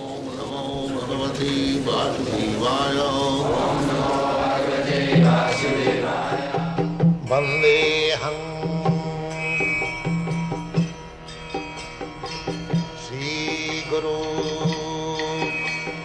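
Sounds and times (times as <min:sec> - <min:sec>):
chanting voices: 0:00.0 - 0:10.0
sustained drone and melody: 0:00.0 - 0:16.0
drum strokes in steady rhythm: 0:00.3 - 0:16.0.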